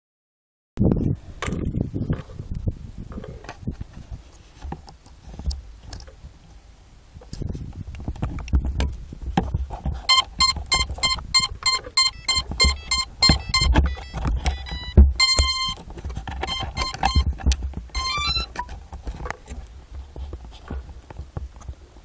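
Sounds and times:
device rubbing against fabric: 0:09.5 - 0:21.0
electronic beeps: 0:10.1 - 0:15.8, 0:16.4 - 0:18.7.

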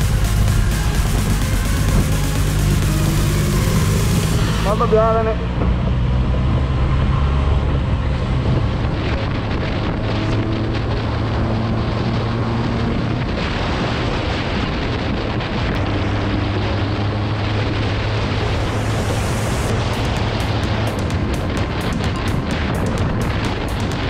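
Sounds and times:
motorcycle engine cruising: 0:00.0 - 0:24.0
wind rush on microphone: 0:00.0 - 0:24.0.

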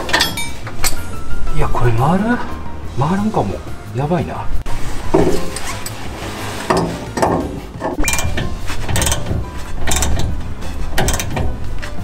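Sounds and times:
steel tools clanking on metal: 0:00.0 - 0:01.1, 0:05.2 - 0:12.0
sharp metallic knocks: 0:05.1 - 0:05.7, 0:06.7 - 0:11.7.

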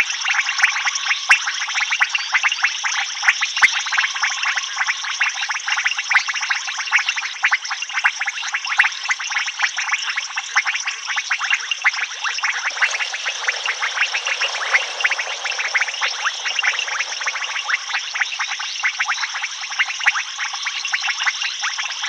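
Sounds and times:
frog chorus clicking: 0:10.6 - 0:21.8.

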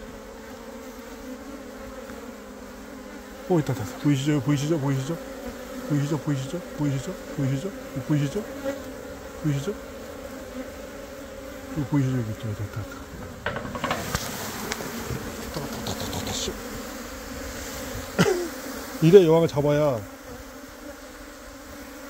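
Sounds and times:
bees buzzing past: 0:00.0 - 0:22.0
rustling: 0:12.8 - 0:16.4.

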